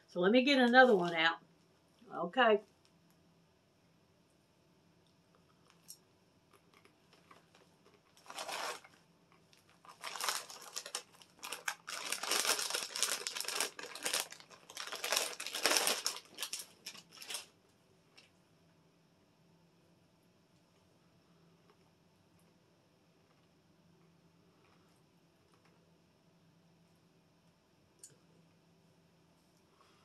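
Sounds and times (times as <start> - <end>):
plastic bag crackling: 6.5 - 17.5.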